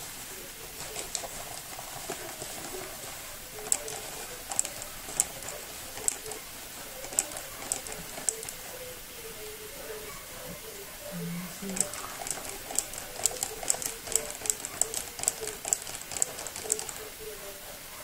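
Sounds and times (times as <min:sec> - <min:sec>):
dry ingredient clicking into cup: 0:00.8 - 0:08.6, 0:11.7 - 0:17.1.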